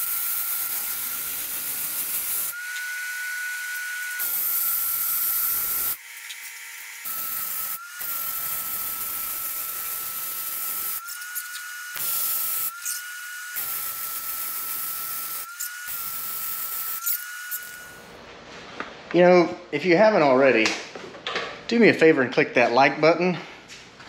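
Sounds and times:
welding arc crackling and hissing: 0.0 - 2.9, 3.6 - 18.0.

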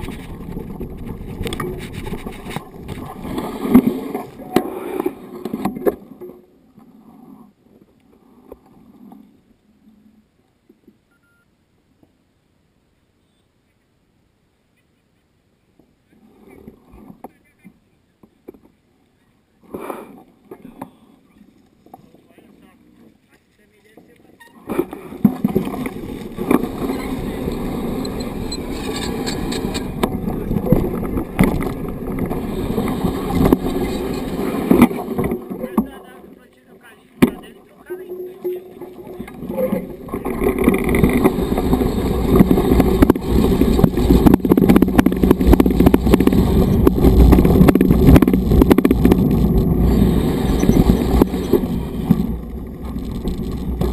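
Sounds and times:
bike tyres crunching on dirt: 21.6 - 36.0, 38.6 - 53.9
bike parts rattling and clicking: 39.4 - 53.9.

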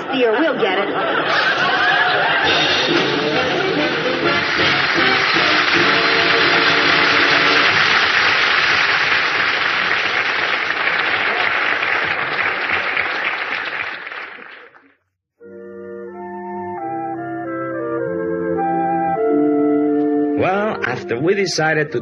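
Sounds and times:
audience applauding: 1.3 - 15.0
music bridge: 2.3 - 7.8, 15.4 - 22.0.

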